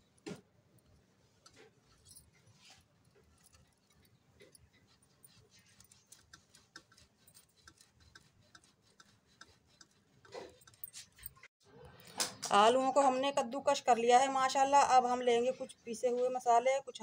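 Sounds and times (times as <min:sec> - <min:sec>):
potato grated on metal grater: 0:05.1 - 0:10.7.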